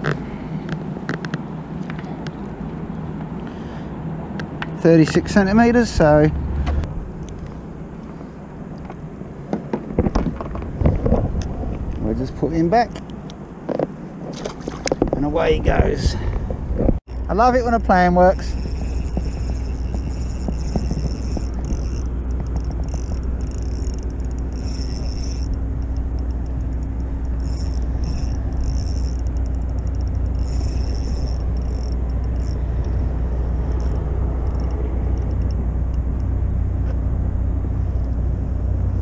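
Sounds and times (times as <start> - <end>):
traffic rumble: 0.0 - 39.0
fishing reel whirring: 17.9 - 36.3.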